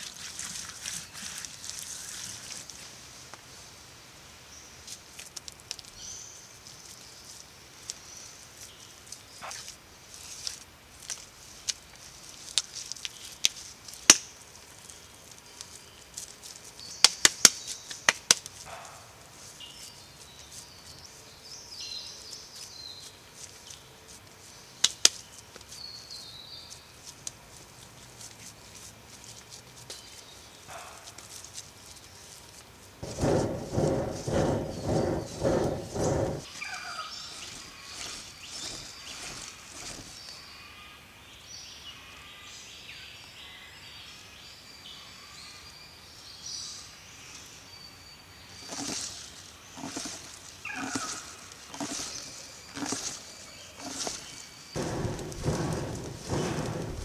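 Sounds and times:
insects calling: 33.0 - 41.3, 44.7 - 57.0
forest birds calling: 33.0 - 57.0.

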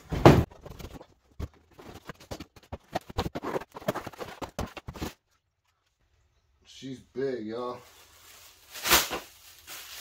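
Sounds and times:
cardboard packaging rustling: 0.4 - 5.3, 7.9 - 10.0.

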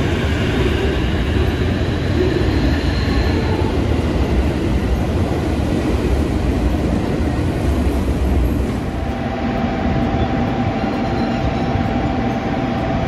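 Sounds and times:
train rumbling past: 0.0 - 13.0
faint high whine: 8.1 - 13.0.

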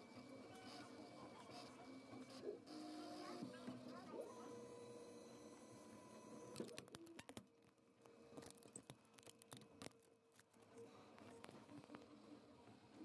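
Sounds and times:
printer motors whining: 0.0 - 6.8
faint clicks and taps: 6.6 - 12.2.

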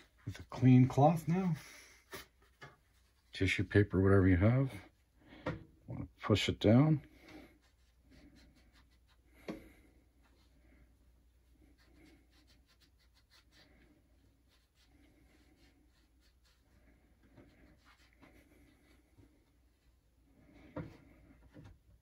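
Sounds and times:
paper towel rubbing vinyl: 7.2 - 9.4, 10.1 - 20.1.

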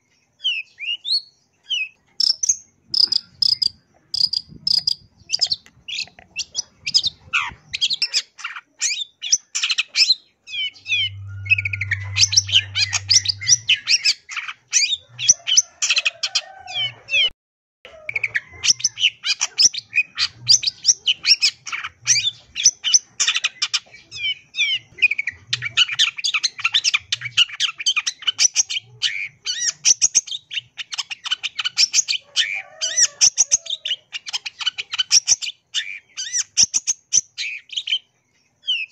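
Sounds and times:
bird singing chattering trills: 0.0 - 15.8.

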